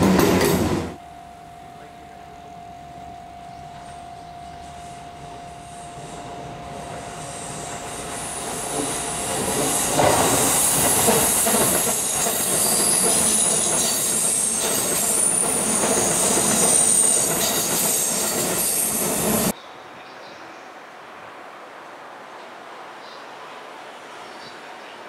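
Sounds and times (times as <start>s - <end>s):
clatter of rail joints: 0.0s - 1.0s, 8.6s - 19.5s
train rumble: 0.0s - 1.0s, 1.6s - 19.6s
train wheels squealing: 6.0s - 19.5s.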